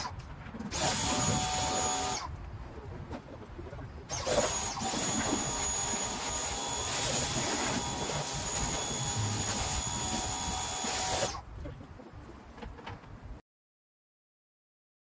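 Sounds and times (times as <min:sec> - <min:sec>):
thin high whine: 0:04.2 - 0:11.4
pressure washer spraying hiss: 0:06.3 - 0:07.5, 0:08.2 - 0:11.4.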